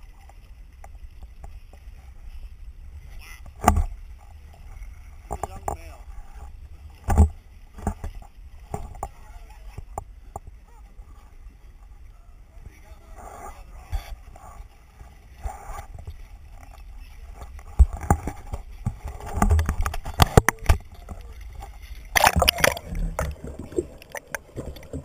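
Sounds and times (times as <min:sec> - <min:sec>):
water sloshing and splashing: 0:00.0 - 0:12.8, 0:13.6 - 0:25.0
muffled underwater gurgling: 0:15.4 - 0:25.0
loud rush of water: 0:19.0 - 0:25.0.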